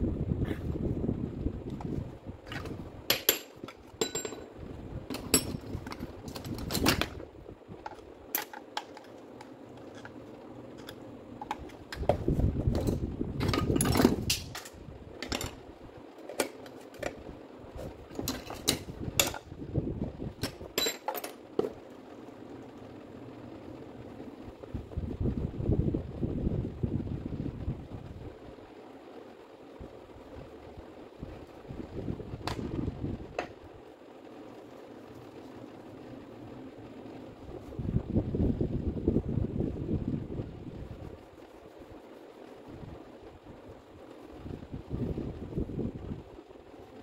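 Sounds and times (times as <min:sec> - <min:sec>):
metal parts clinking: 0:02.5 - 0:04.5, 0:12.7 - 0:15.6, 0:18.1 - 0:19.4, 0:20.4 - 0:21.4.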